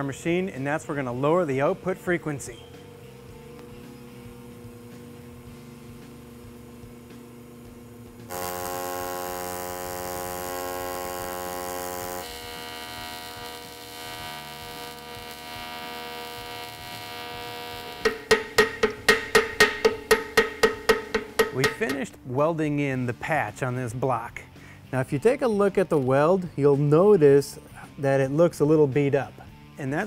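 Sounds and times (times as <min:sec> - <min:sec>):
welding arc buzzing: 0:00.3 - 0:22.2.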